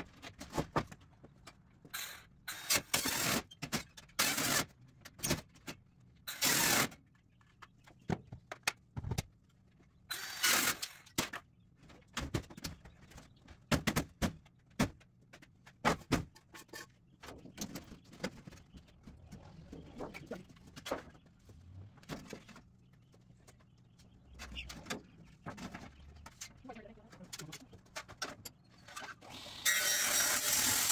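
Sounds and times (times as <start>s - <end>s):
knocks and clatters of metal roofing: 0.0s - 9.9s, 10.5s - 29.3s.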